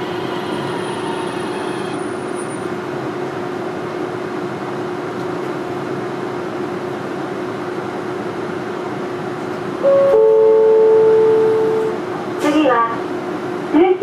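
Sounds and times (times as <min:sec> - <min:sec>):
tram rumble: 0:00.0 - 0:14.0
two-note electronic chime: 0:09.8 - 0:11.9.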